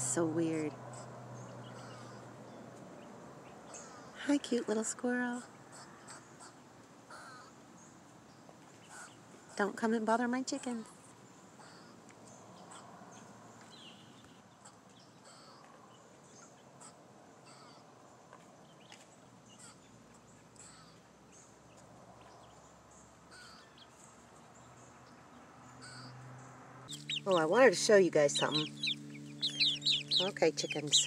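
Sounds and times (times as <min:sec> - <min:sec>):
faint high bird chirps: 0:26.9 - 0:31.0.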